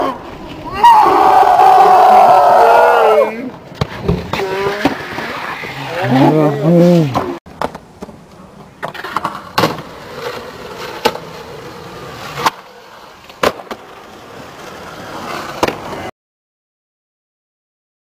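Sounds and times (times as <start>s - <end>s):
skateboard wheels rolling on concrete: 0.0s - 16.1s
skateboard clacking on concrete: 7.2s - 11.4s.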